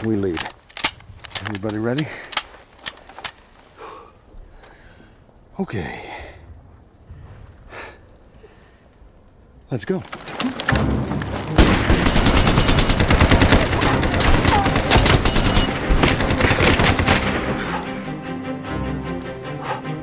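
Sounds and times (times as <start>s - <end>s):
music: 10.7s - 12.2s, 13.0s - 20.0s
rifle shots: 11.4s - 17.5s
machine gun firing in bursts: 11.6s - 17.4s.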